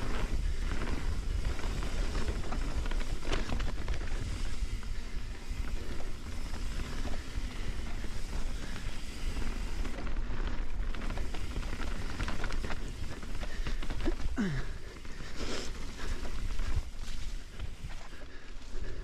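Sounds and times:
wind rumble on microphone: 0:00.0 - 0:14.4
bike chain rattling: 0:00.0 - 0:19.0
tyres rolling on dirt trail: 0:00.0 - 0:19.0.

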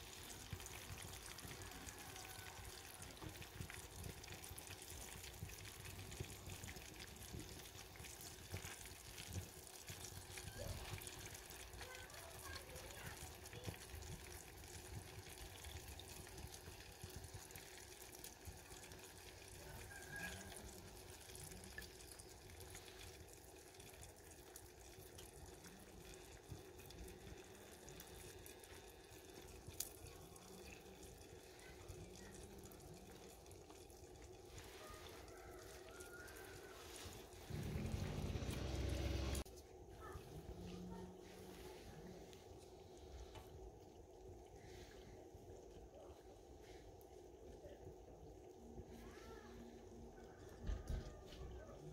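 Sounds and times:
drips: 0:00.0 - 0:51.9
wood fire: 0:00.0 - 0:51.9.

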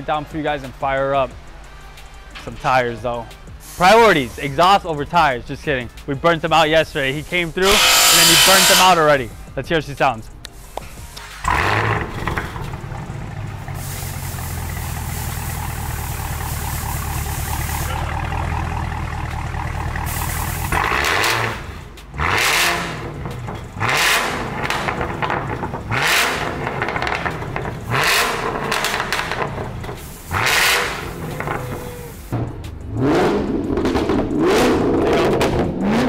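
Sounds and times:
car engine idling and revving: 0:00.0 - 0:36.0.

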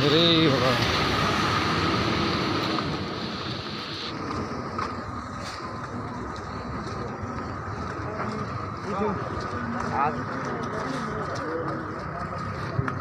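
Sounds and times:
road rumble: 0:00.0 - 0:13.0
high hiss: 0:00.9 - 0:04.1.

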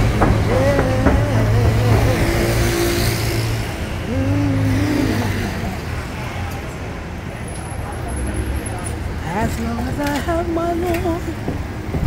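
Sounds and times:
bus engine running: 0:00.0 - 0:07.1
cars passing: 0:00.0 - 0:12.0.

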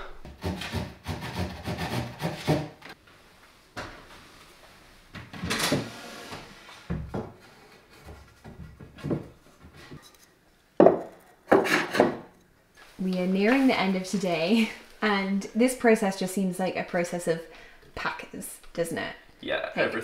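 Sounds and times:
wooden knocks and clunks: 0:08.0 - 0:10.0.

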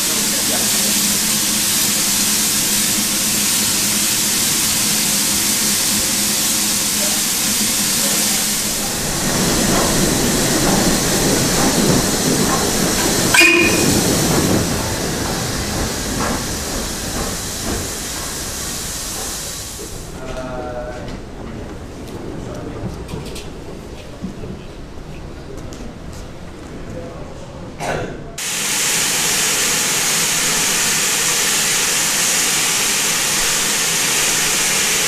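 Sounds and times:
steam locomotive hissing: 0:00.0 - 0:20.2, 0:28.4 - 0:35.0
locomotive rumbling: 0:00.0 - 0:27.7
brief tone: 0:13.4 - 0:13.9.

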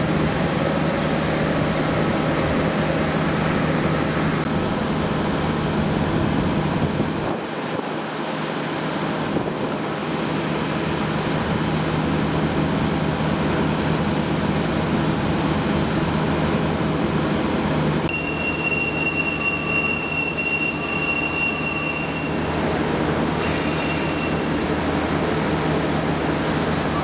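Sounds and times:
train rumbling along track: 0:00.0 - 0:27.0
high wheel squeal: 0:18.1 - 0:24.7.

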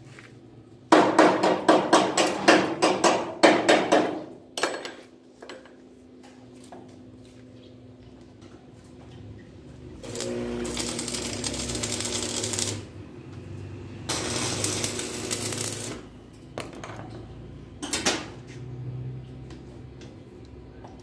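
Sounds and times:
arc welding crackling: 0:10.0 - 0:13.0, 0:14.1 - 0:16.2.

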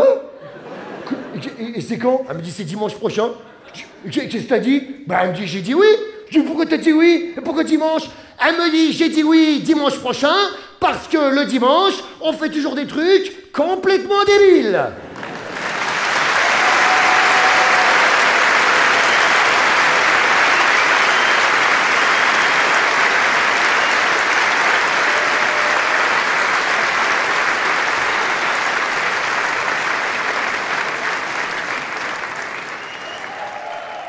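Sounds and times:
large audience applauding: 0:15.0 - 0:34.0.

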